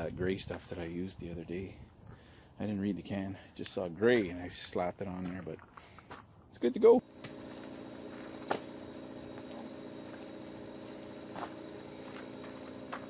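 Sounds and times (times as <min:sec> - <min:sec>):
motor humming steadily: 0:07.0 - 0:13.0.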